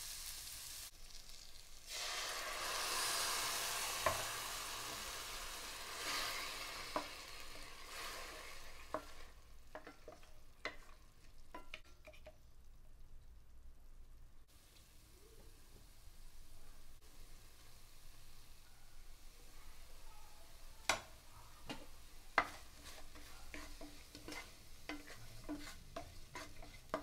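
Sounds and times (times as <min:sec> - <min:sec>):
liquid hissing in hot oil: 0:00.0 - 0:09.5
wooden spatula knocking pan: 0:20.9 - 0:27.0.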